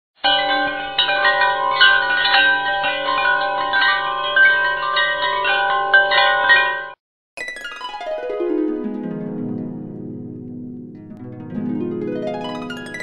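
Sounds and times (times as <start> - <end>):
bell-like chime music: 0.2 - 8.5.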